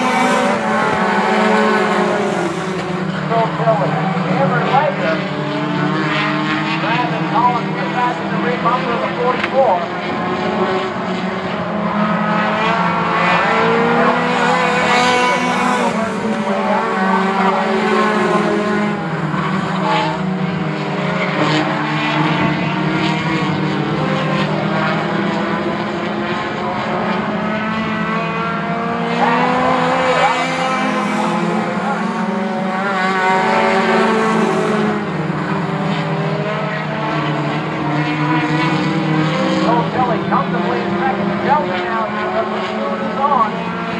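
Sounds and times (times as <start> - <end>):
race car engines passing: 0.0 - 43.9.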